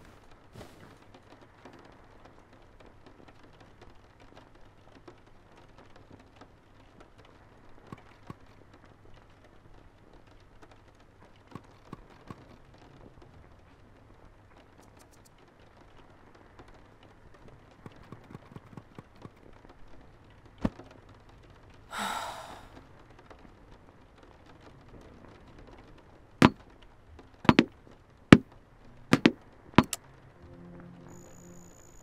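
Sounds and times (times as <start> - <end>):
breathy sigh: 21.9 - 22.8.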